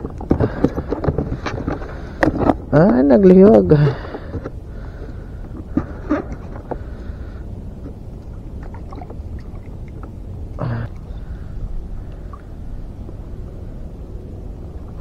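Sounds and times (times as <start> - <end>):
water around a boat: 0.0 - 15.0
wind: 0.0 - 15.0
person grunting: 10.6 - 11.0.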